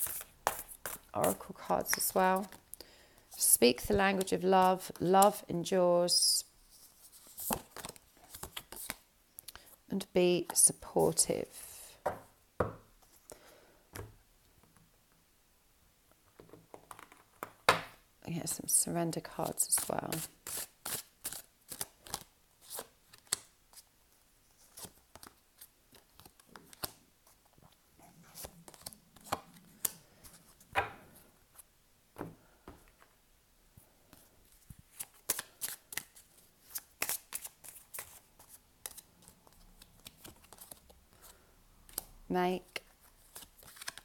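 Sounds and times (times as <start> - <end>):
cards being shuffled: 6.8 - 9.0, 28.3 - 30.6, 34.1 - 41.3, 43.0 - 44.0.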